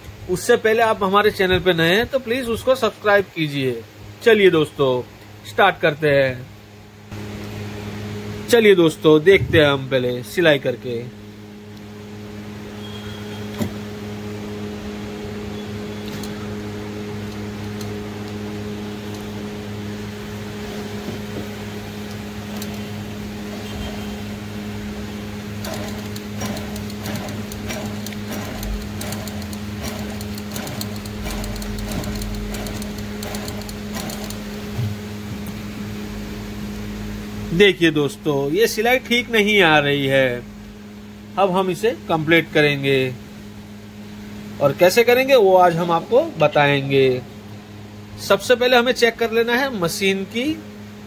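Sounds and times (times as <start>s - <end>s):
sewing machine motor hum: 15.0s - 35.6s
sewing machine needle clicking: 25.6s - 34.4s.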